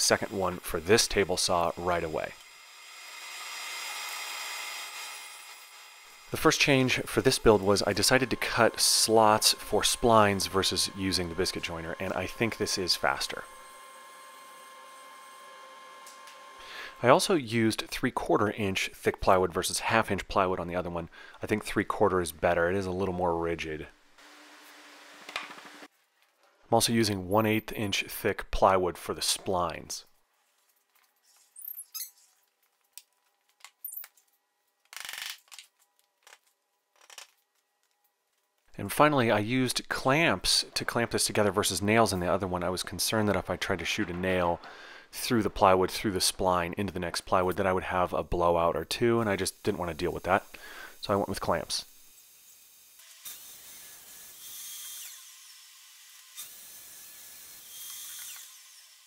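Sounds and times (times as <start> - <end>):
track saw whine cutting plywood: 0.0 - 17.0.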